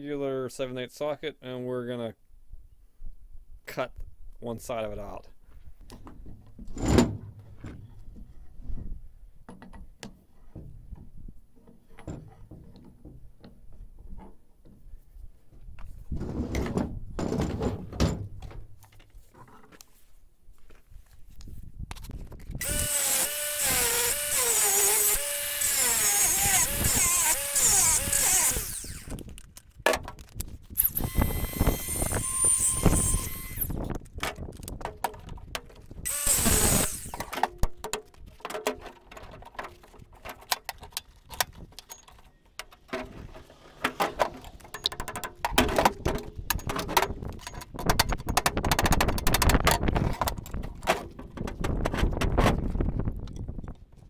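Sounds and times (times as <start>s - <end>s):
angle grinder cutting steel: 22.6s - 29.2s, 30.8s - 33.8s, 36.1s - 37.3s
angle grinder whining: 22.6s - 29.2s, 30.8s - 33.8s, 36.0s - 37.4s.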